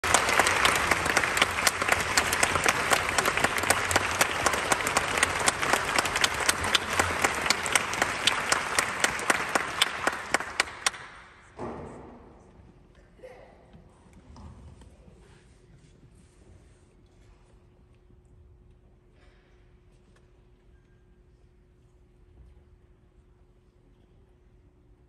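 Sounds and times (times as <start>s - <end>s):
audience applauding: 0.0s - 11.5s
close sharp hand clapping: 0.0s - 11.5s.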